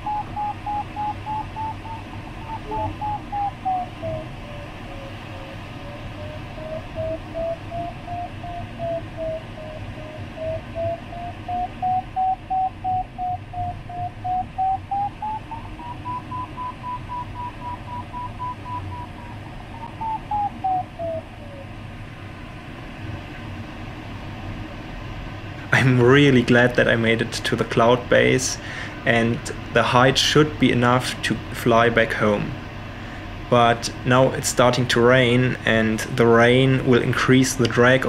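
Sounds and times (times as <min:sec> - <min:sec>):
variometer beeping: 0:00.0 - 0:21.6
cockpit air noise: 0:00.0 - 0:38.0.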